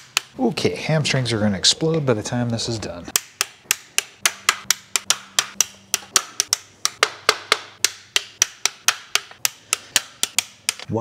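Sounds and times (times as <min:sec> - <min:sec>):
hand ratchet clicking: 0:03.1 - 0:10.9.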